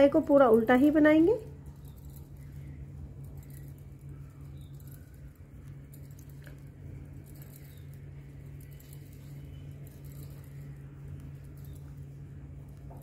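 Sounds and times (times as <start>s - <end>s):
knitting needles clicking: 0.0s - 13.0s
steady low hum: 0.0s - 13.0s.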